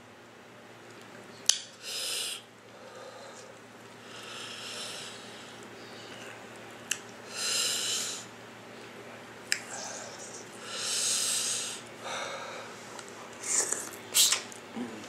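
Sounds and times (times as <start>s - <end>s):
airy mouth sucking: 9.5s - 11.9s, 13.4s - 14.5s
lip and tongue clicks: 13.6s - 14.6s.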